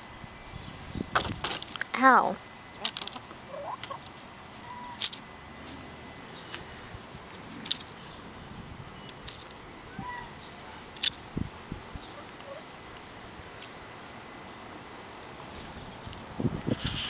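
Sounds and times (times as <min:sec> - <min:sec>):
hen call: 0:02.7 - 0:05.2, 0:09.9 - 0:10.8.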